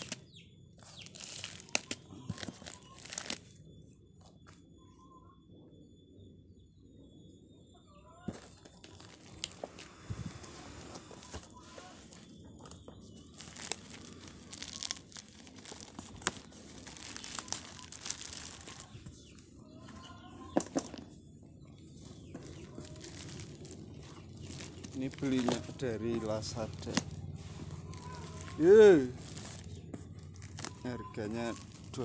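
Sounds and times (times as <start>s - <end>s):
plastic wrap and tape tearing: 0.0s - 0.2s, 0.8s - 3.5s, 13.2s - 19.0s, 22.2s - 32.0s.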